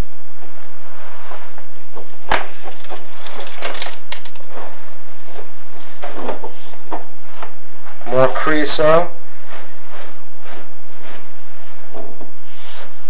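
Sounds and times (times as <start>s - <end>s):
scattered clicks: 2.8s - 4.4s.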